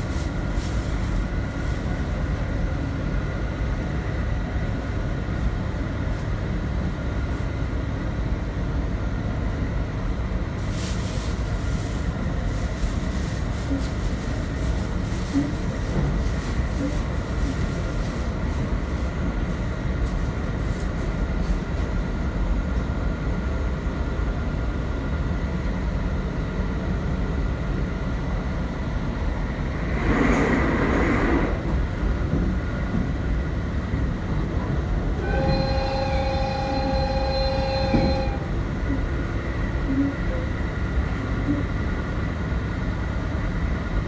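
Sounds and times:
train wheels rumbling on track: 0:00.0 - 0:44.0.

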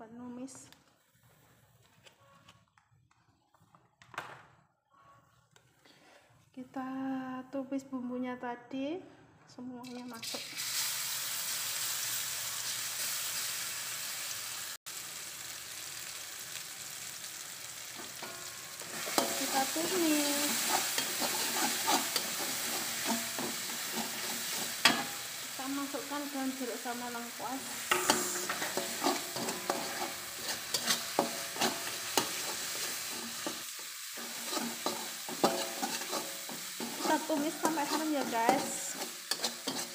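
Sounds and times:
spice paste sizzling in hot oil: 0:09.9 - 0:39.9
metal spatula scraping pan: 0:18.0 - 0:26.6, 0:27.6 - 0:39.9.

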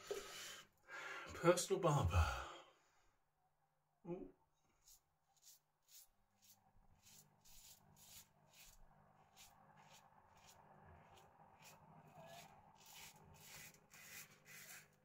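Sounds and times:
razor scraping stubble: 0:04.8 - 0:15.0.

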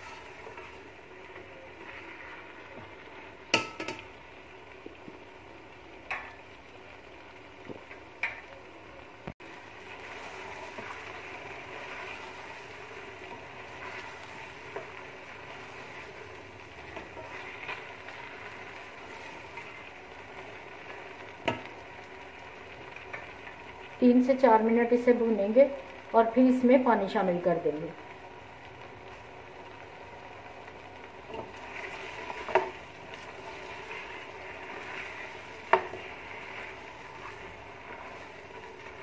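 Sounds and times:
meat frying with steady sizzle: 0:00.0 - 0:39.0
spatula scraping pot: 0:31.5 - 0:38.4.

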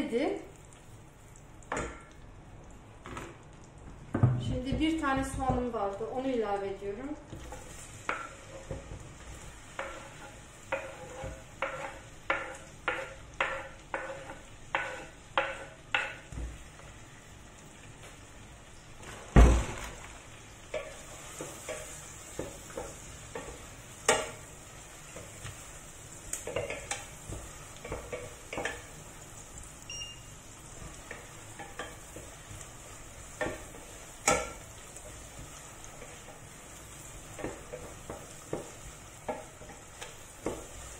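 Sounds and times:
onion sizzling in hot fat: 0:00.0 - 0:40.9
wooden spoon scraping pot: 0:07.4 - 0:16.4.

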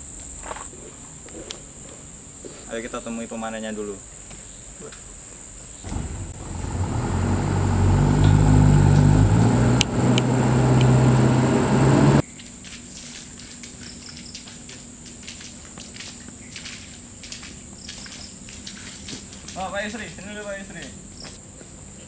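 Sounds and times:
insects droning: 0:00.0 - 0:22.0
motor engine running: 0:05.9 - 0:12.2.

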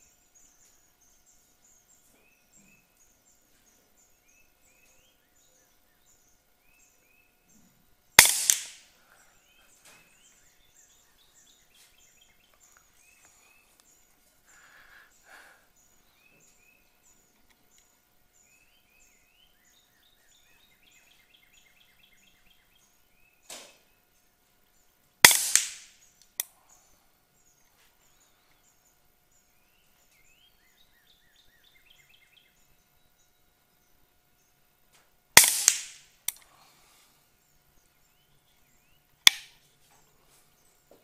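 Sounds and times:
birds singing: 0:00.0 - 0:41.0
air rifle shot: 0:08.2 - 0:08.9, 0:25.2 - 0:26.0, 0:35.4 - 0:36.1.

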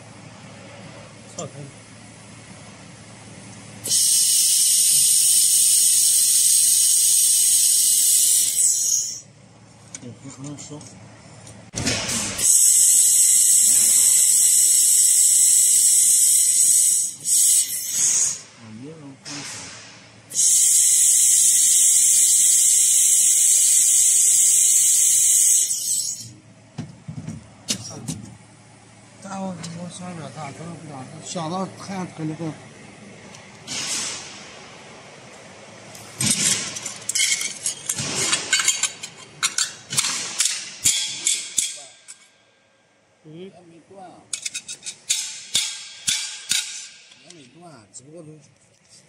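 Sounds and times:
laser welder high-pitched hiss: 0:03.8 - 0:09.3, 0:12.3 - 0:18.5, 0:20.3 - 0:26.3.

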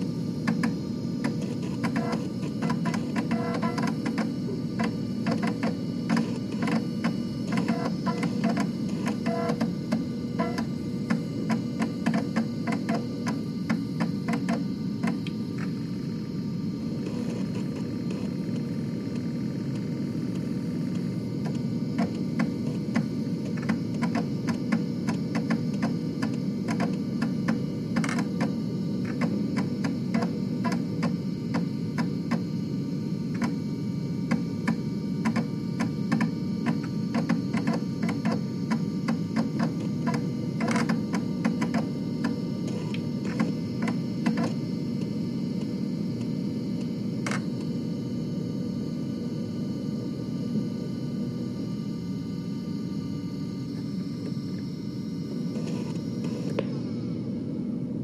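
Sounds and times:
floppy drive motor whir: 0:00.0 - 0:58.0.

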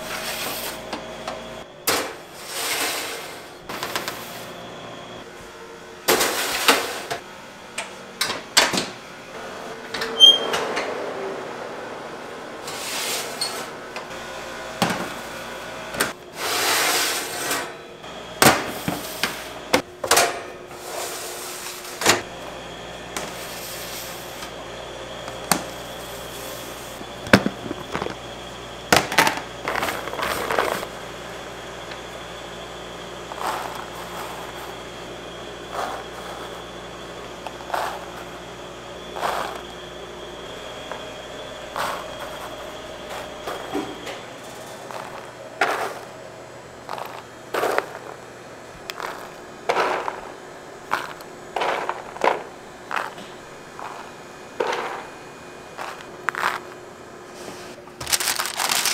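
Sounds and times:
machine hum with high whine: 0:00.0 - 0:58.9
scraping or rustling: 0:57.3 - 0:58.9.

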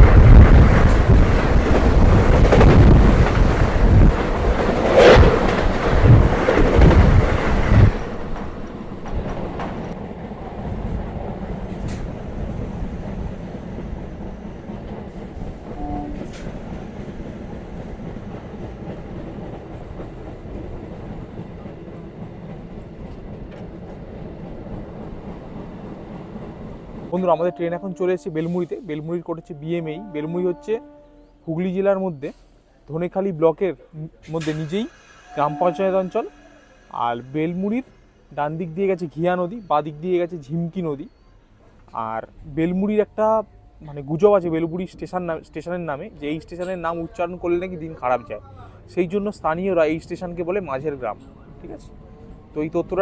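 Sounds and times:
train wheels clattering over rails: 0:00.0 - 0:27.1
train rushing past: 0:00.0 - 0:31.5, 0:34.2 - 0:40.8.

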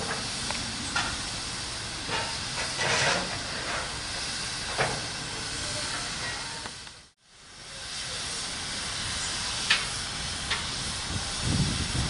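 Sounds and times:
steam locomotive hissing: 0:00.0 - 0:12.0.

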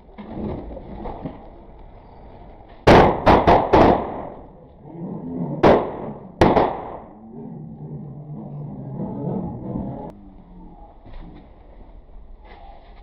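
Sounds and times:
firecrackers banging: 0:02.8 - 0:04.5, 0:05.6 - 0:07.2.

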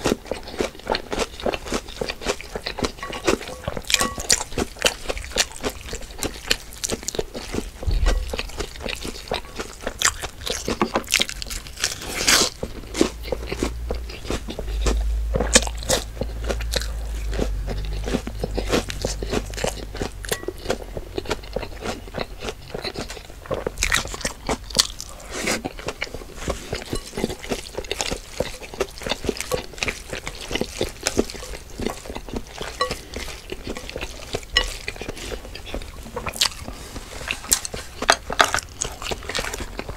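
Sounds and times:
wet chewing of food: 0:00.0 - 0:39.9
low rumble: 0:07.8 - 0:09.8.

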